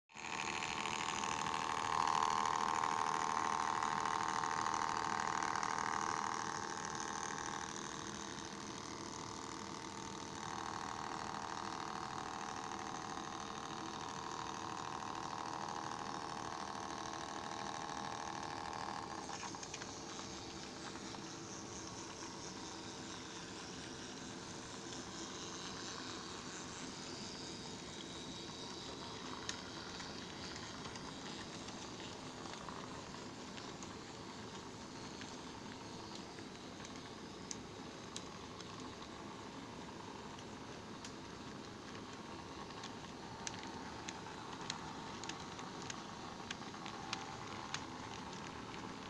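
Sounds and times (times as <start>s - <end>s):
model train motor whirring: 0.1s - 49.0s.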